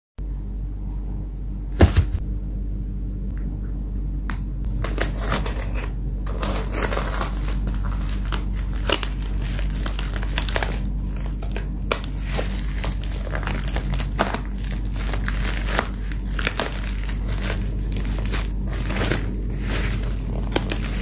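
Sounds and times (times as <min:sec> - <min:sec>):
low steady hum: 0:00.2 - 0:21.0
plastic mailer crinkling: 0:04.7 - 0:21.0.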